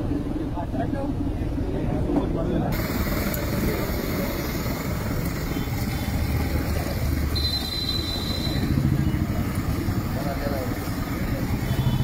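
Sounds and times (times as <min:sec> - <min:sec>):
low traffic rumble: 0:00.0 - 0:12.0.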